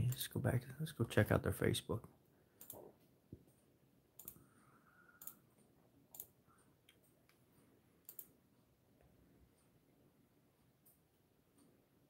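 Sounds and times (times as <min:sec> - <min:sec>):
computer mouse clicks: 0:02.6 - 0:02.9, 0:04.2 - 0:04.5, 0:05.2 - 0:05.4, 0:06.1 - 0:07.4, 0:08.0 - 0:08.4.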